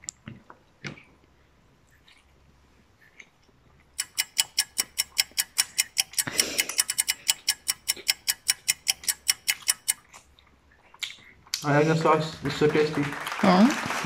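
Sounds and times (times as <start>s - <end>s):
fast clock ticking: 4.0s - 10.2s.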